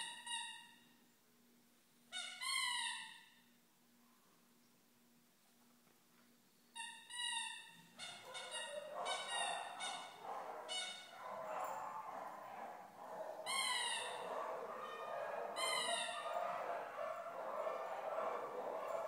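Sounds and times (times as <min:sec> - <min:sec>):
small dog whining: 0:08.0 - 0:19.0.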